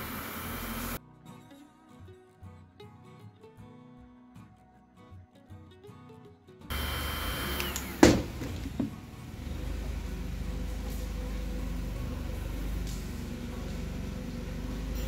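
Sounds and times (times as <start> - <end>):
steady low hum: 0.0 - 1.0, 6.7 - 15.0
heat gun knocking on workbench: 8.0 - 9.0.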